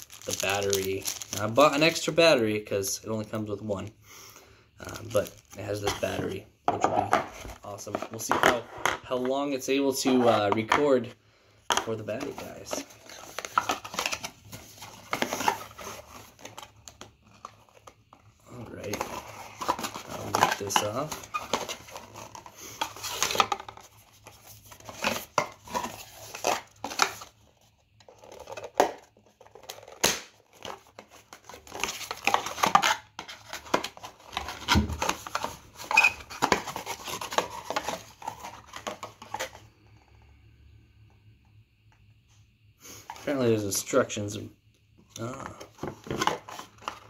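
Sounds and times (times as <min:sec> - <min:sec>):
cardboard and paper rustling: 0:00.0 - 0:02.0, 0:04.8 - 0:09.4, 0:11.9 - 0:39.6, 0:45.2 - 0:47.0.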